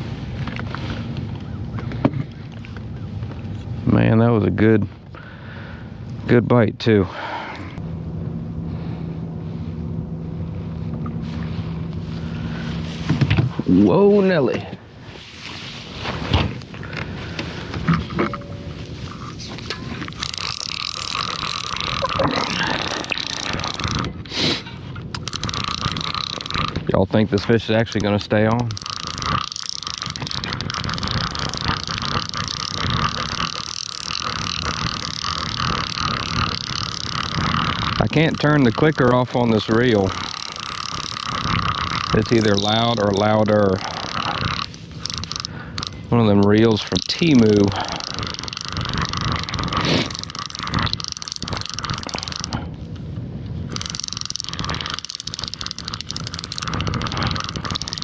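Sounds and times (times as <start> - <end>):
fishing reel clicker ticking: 20.1 - 24.1, 25.1 - 52.6, 53.7 - 58.0.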